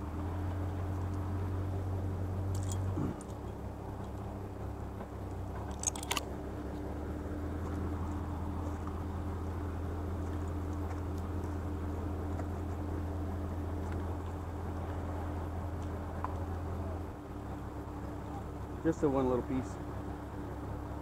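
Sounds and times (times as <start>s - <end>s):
engine running steadily: 0.0s - 21.0s
rattle of sharp clicks: 2.5s - 4.3s, 5.5s - 6.3s.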